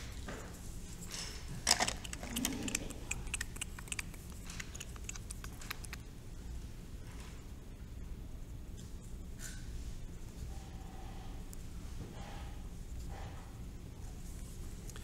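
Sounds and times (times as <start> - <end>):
colored pencils clicking and rattling: 1.6 - 6.0.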